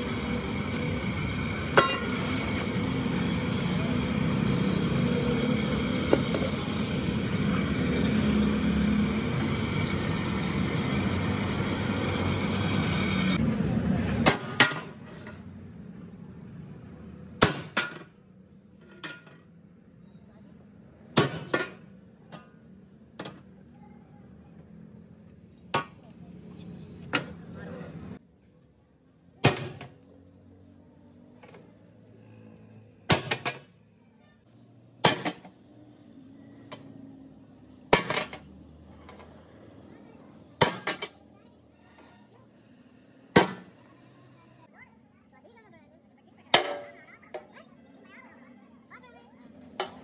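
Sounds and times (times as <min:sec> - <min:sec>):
hammer striking steel plate: 0:01.8 - 0:02.2.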